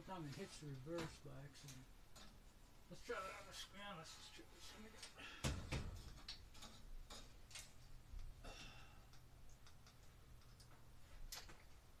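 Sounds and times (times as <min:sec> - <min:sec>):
screws clicking and tapping: 0:09.1 - 0:11.6.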